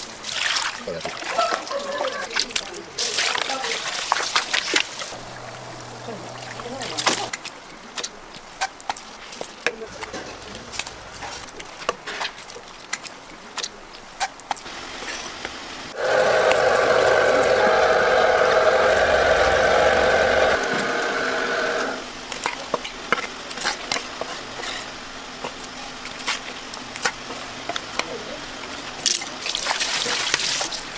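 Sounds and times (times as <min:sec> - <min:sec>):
motor running loudly: 0:05.1 - 0:07.3, 0:16.0 - 0:22.1.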